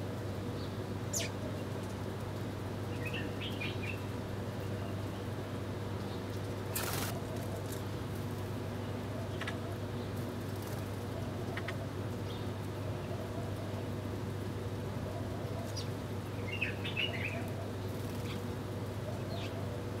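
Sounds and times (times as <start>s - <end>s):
sparrows chirping: 0.5s - 1.7s, 2.8s - 5.2s, 15.2s - 19.7s.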